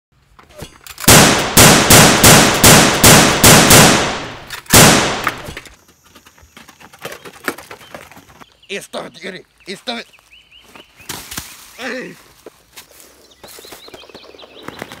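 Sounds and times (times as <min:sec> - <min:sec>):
gunshots ringing: 0:01.1 - 0:05.6.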